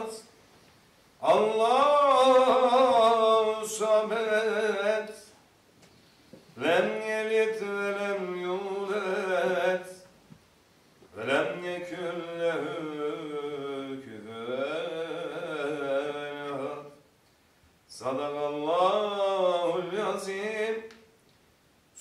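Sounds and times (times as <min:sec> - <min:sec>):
man chanting: 0:06.6 - 0:10.0, 0:11.2 - 0:17.0, 0:17.9 - 0:20.9.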